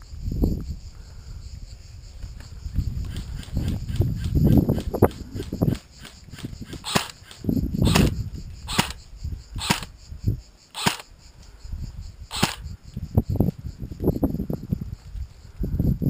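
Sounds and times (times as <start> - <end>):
airsoft rifle shots: 5.7 - 9.0, 9.6 - 9.9, 10.7 - 11.1, 12.3 - 12.6.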